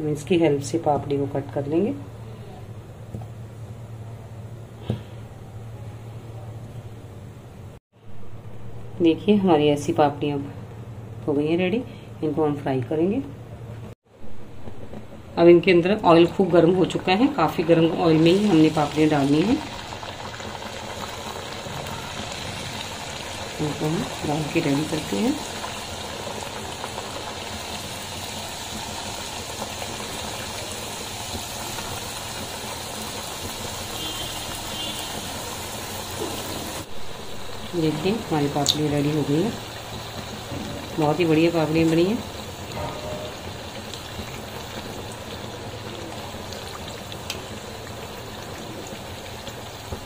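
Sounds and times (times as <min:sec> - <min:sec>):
dough deep-frying in hot oil: 0:14.0 - 0:50.0.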